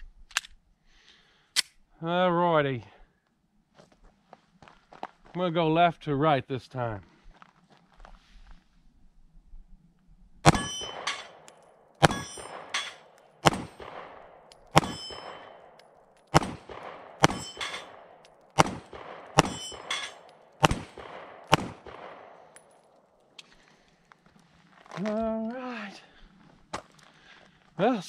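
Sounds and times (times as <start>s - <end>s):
pistol shots: 10.4s - 22.8s
steel targets ringing: 10.5s - 13.1s, 14.7s - 15.8s, 16.7s - 20.8s.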